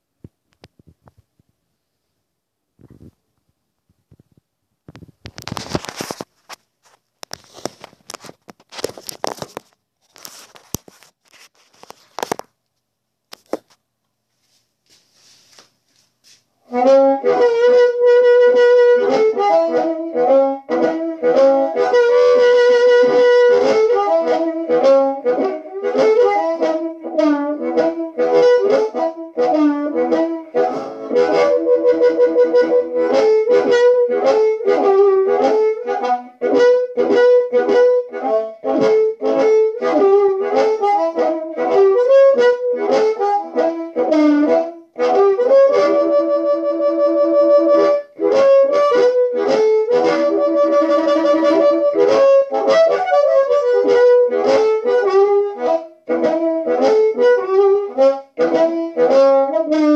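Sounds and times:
amplified blues harmonica: 16.6 - 59.9.

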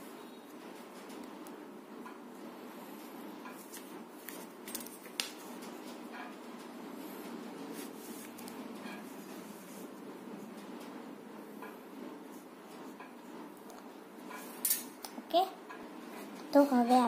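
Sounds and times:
low background noise: 0.0 - 17.0.

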